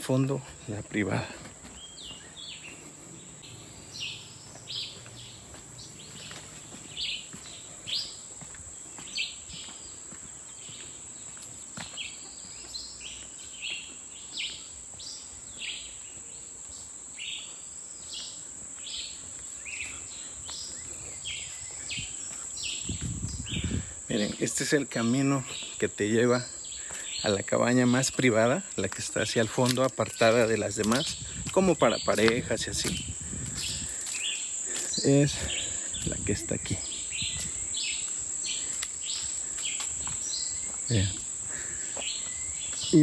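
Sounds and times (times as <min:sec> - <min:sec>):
high-pitched insect drone: 0:15.4 - 0:43.0.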